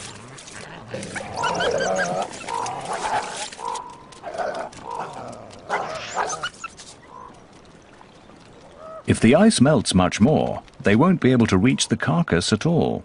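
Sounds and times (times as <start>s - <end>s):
coyotes growling and snarling: 0.0s - 7.4s.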